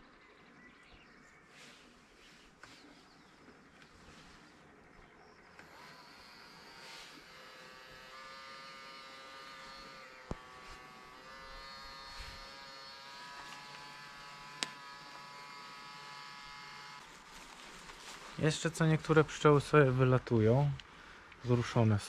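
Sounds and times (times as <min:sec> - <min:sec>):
bees buzzing: 0:05.7 - 0:17.1.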